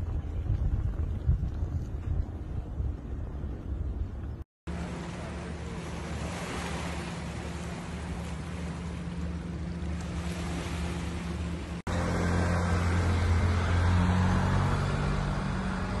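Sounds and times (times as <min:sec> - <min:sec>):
steady low hum: 0:00.0 - 0:11.9
wind rumbling on microphone: 0:00.0 - 0:16.0
waves lapping on pebbly shore: 0:04.7 - 0:09.1, 0:09.8 - 0:11.8.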